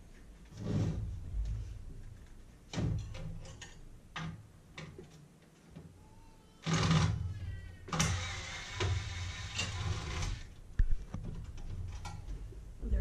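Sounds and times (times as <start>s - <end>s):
cordless drill running: 7.9s - 10.5s.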